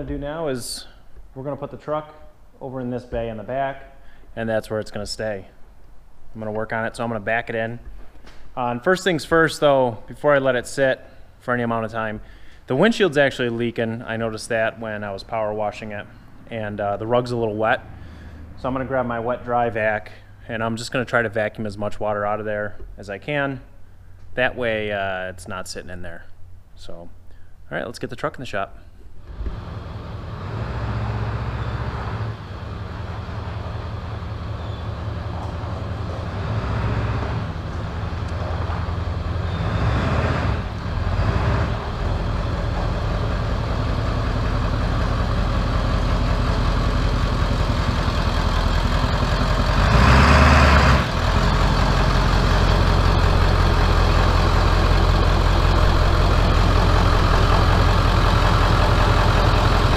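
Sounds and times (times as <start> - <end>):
diesel truck engine idling: 29.3 - 59.9.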